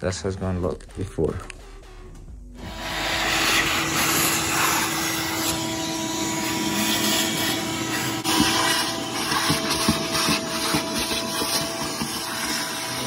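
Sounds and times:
shop vacuum running: 2.6s - 13.0s.

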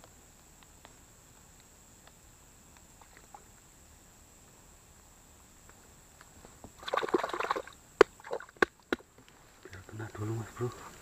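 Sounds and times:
water splashing and sloshing: 6.7s - 9.1s.

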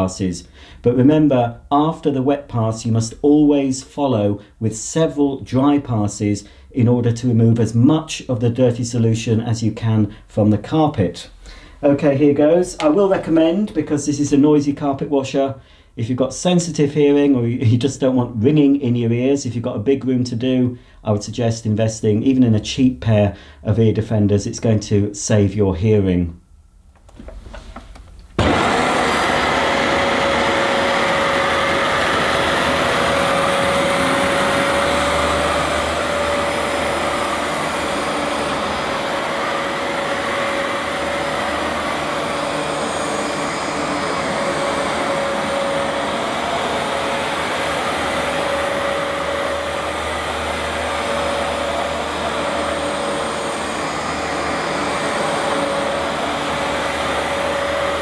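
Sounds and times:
carpet washer motor running: 28.4s - 58.0s.

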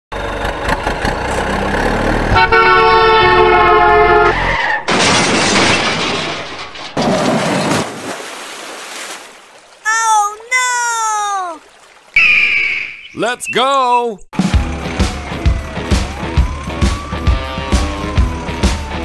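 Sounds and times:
truck horn blast: 2.2s - 4.5s
splash into water: 7.0s - 9.9s, 11.2s - 12.3s.

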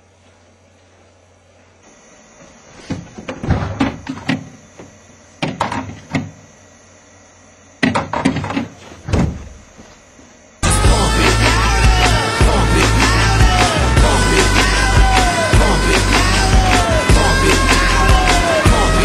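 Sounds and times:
door knocks and thuds: 2.9s - 4.6s, 5.4s - 6.4s, 7.8s - 9.7s.

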